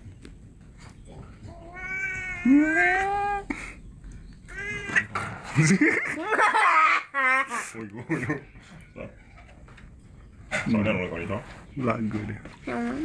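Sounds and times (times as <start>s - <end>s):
cat meowing: 1.5s - 3.4s.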